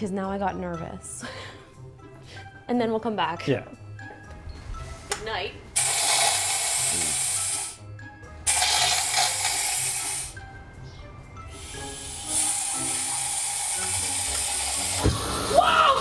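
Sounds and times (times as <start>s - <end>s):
background music: 0.0s - 16.0s
gas hissing from nozzle: 5.8s - 7.8s, 8.4s - 10.4s, 11.5s - 15.5s.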